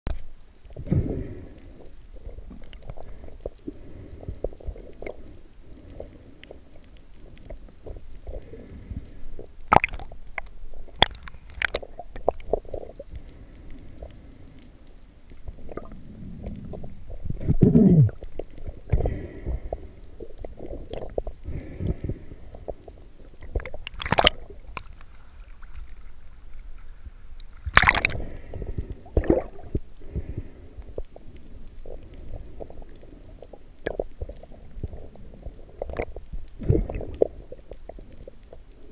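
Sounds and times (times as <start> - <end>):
underwater rumble of moving water: 0.1 - 38.9
loud falling gurgle: 17.3 - 18.2, 27.7 - 28.3.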